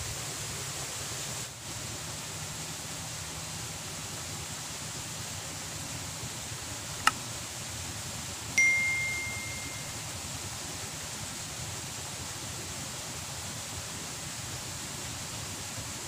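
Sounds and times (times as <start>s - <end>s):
background hiss: 0.0s - 16.0s
bright bell ding: 8.6s - 10.0s.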